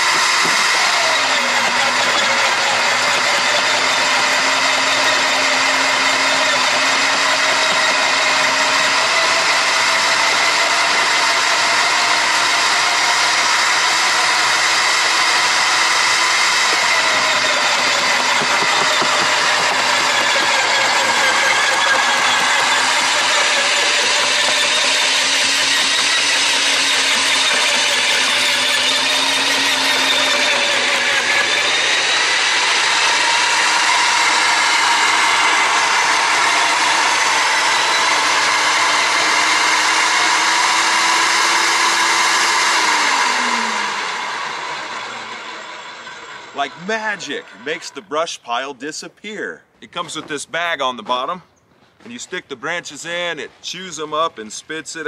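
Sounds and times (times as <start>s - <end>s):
electric wood chipper chewing branches: 0.0s - 48.0s.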